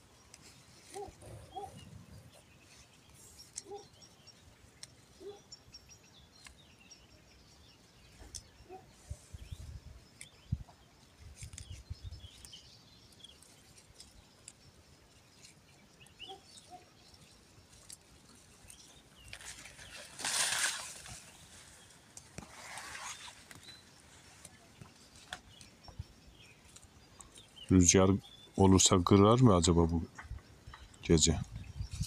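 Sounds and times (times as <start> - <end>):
low bird calls: 0.0 - 4.3, 5.0 - 10.9, 15.4 - 18.0
small birds chirping: 0.0 - 32.0
seedlings pulled from soil: 11.2 - 28.0.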